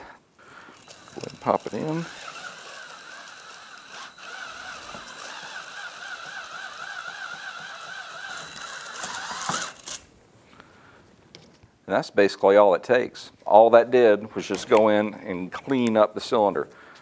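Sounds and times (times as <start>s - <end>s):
cordless drill whirring: 0.6s - 10.1s.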